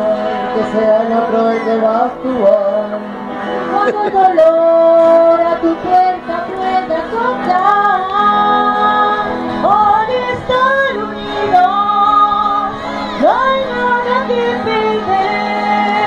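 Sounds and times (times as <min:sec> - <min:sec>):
acoustic guitar: 0:00.0 - 0:16.0
choir singing: 0:03.8 - 0:16.0.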